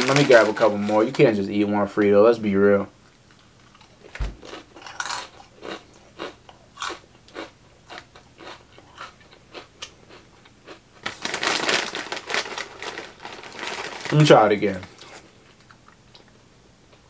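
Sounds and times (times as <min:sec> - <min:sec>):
chip bag crinkling: 0:00.0 - 0:01.8, 0:03.6 - 0:10.2, 0:11.0 - 0:15.8
crunchy chewing of chips: 0:03.3 - 0:16.4.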